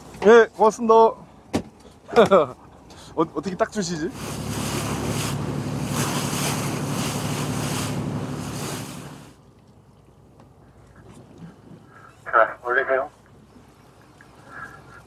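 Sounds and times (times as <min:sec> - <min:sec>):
boat engine humming: 0:00.0 - 0:15.0
wake water rushing: 0:03.7 - 0:12.5, 0:13.3 - 0:15.0.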